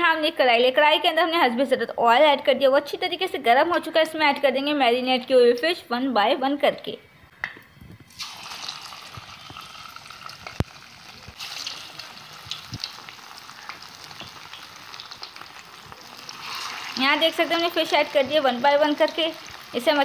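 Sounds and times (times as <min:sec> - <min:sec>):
fish sizzling in hot oil: 0:08.1 - 0:20.0.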